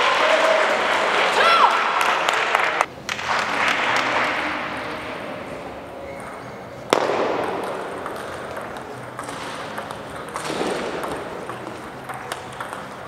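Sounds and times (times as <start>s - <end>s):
table tennis ball clicking: 6.9s - 13.0s.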